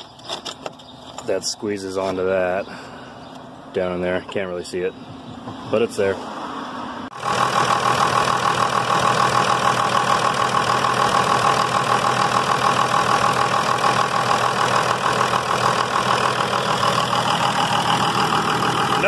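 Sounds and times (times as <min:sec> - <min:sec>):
diesel engine idling: 0:07.1 - 0:19.0.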